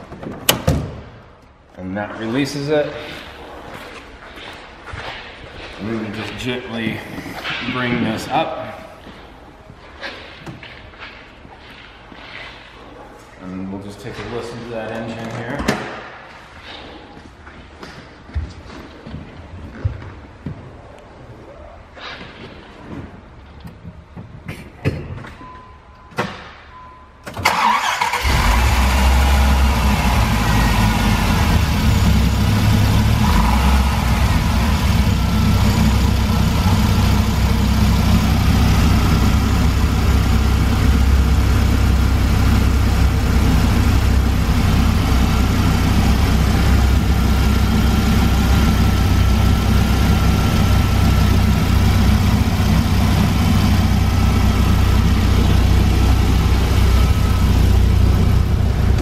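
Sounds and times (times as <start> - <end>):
car engine starting and idling: 27.3 - 59.0.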